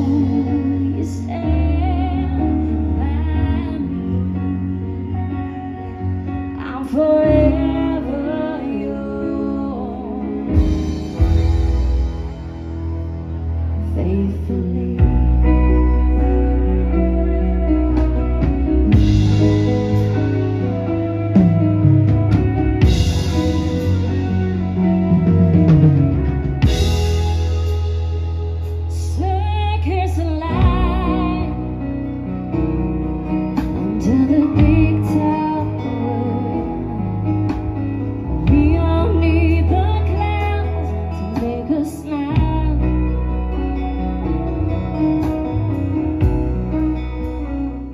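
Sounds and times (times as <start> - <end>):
woman singing into microphone: 0.0 - 11.5, 13.8 - 18.3, 28.9 - 32.2, 33.6 - 44.1
bass guitar: 0.0 - 47.9
electric guitar: 0.0 - 47.9
keyboards: 0.0 - 47.9
live band playing: 0.0 - 47.9
drums: 10.1 - 47.9.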